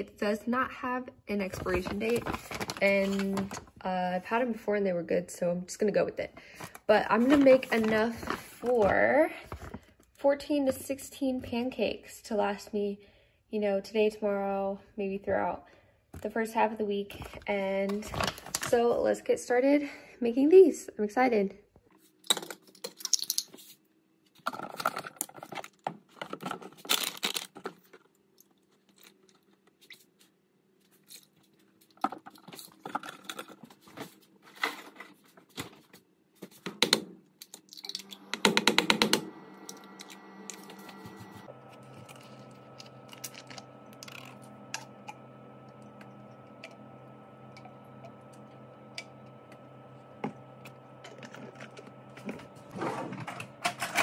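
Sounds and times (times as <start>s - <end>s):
steady electric hum: 0.0s - 12.9s, 37.7s - 54.0s.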